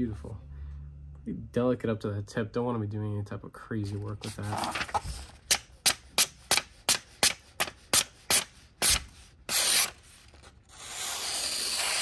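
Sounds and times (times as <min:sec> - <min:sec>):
knife blade slicing paper: 0:04.2 - 0:12.0.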